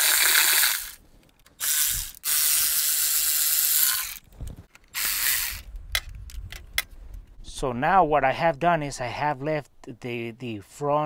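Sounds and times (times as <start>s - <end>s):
electric ratchet motor whirring: 0.0s - 1.0s, 1.6s - 4.2s, 4.9s - 5.7s.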